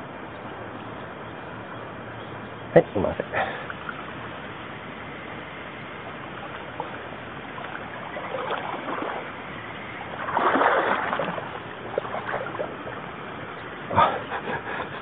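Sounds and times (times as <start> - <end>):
river water rushing: 0.0 - 15.0
water splashing: 3.2 - 15.0.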